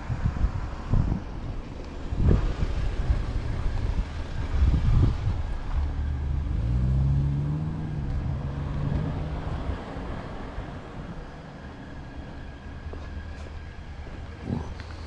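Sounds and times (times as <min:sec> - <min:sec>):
wind buffeting microphone: 0:00.0 - 0:11.4
low engine hum: 0:00.0 - 0:15.0
car driving past: 0:02.1 - 0:11.4.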